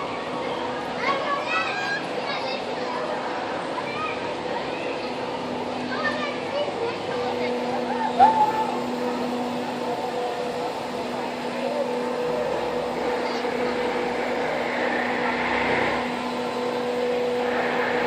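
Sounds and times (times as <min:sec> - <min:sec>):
faint crowd voices: 0:00.0 - 0:18.0
ride machinery humming: 0:00.0 - 0:18.0
low rush: 0:07.2 - 0:18.0.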